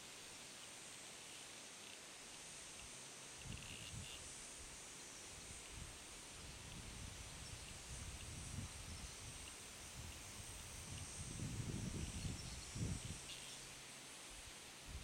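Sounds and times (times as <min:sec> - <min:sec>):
steady high hiss: 0:00.0 - 0:15.0
wind buffeting microphone: 0:10.8 - 0:13.2.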